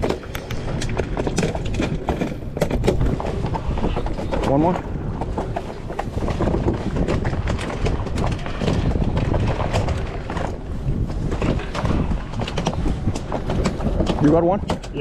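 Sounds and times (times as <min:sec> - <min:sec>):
boat engine running: 0:00.0 - 0:15.0
wind on microphone: 0:00.0 - 0:15.0
light clicks and knocks: 0:11.2 - 0:15.0.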